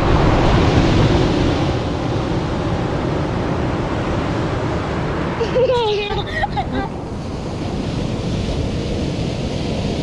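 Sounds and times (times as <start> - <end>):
car road noise: 0.0 - 9.6
ocean waves breaking on beach: 0.0 - 10.0.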